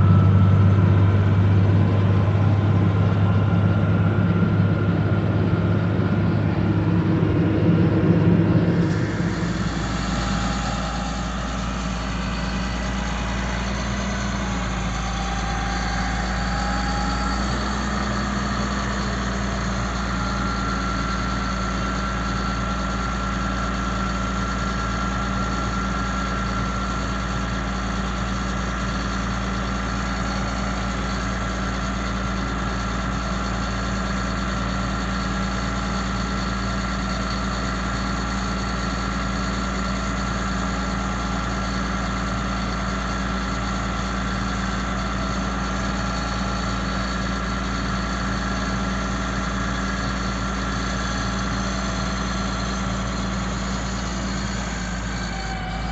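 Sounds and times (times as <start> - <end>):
steady high tone: 0.0 - 18.2
diesel truck engine running: 0.0 - 55.9.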